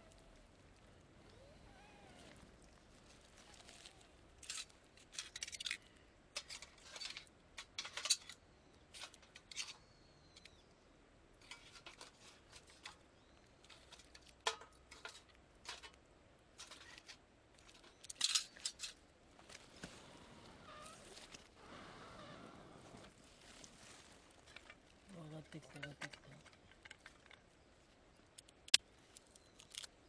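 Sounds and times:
wood fire crackling: 0:16.6 - 0:29.9.

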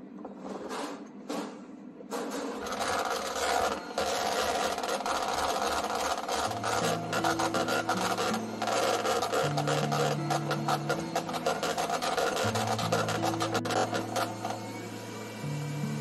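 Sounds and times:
electric hand mixer whirring: 0:02.6 - 0:16.0
beaters rattling in a bowl: 0:02.7 - 0:14.3.

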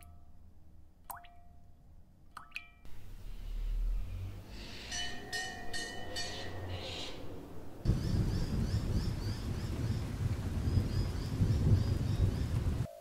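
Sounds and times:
low rumble: 0:02.9 - 0:12.9
dense rain and thunder rumble: 0:07.9 - 0:12.9.

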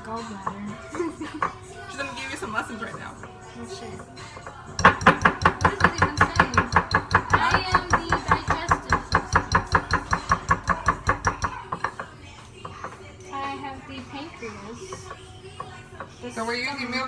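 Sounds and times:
utensil clinking against bowl: 0:02.4 - 0:13.2.

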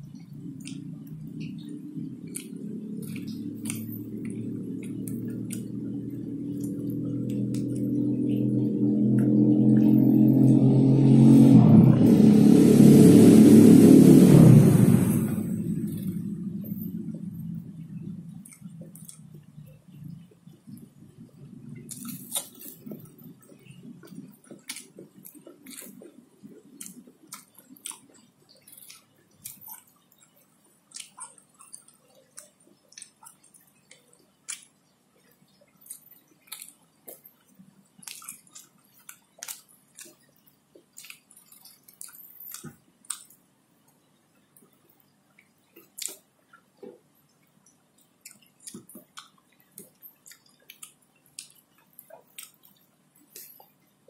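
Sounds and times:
man chewing food: 0:00.0 - 0:10.8, 0:15.3 - 0:54.0
wet mouth clicks: 0:00.6 - 0:07.9.

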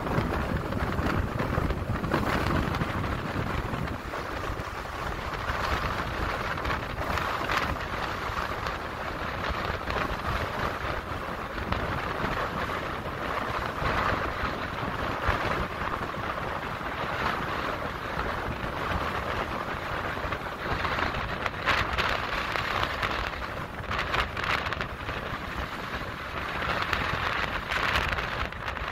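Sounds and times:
strong wind blowing on microphone: 0:00.0 - 0:28.9.

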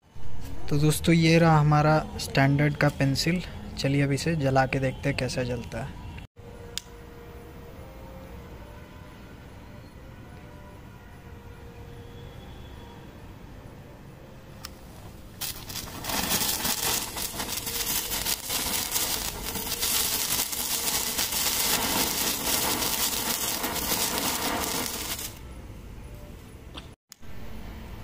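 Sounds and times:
firework sparks crackling hiss: 0:15.3 - 0:25.4.

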